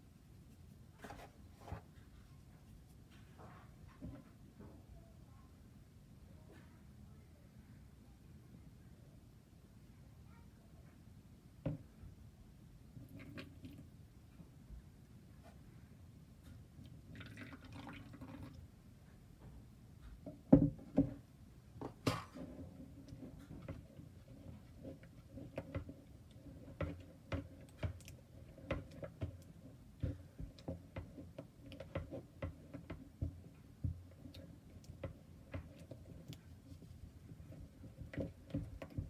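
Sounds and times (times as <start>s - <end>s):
spatula knocking and scraping bowl: 20.2s - 39.0s.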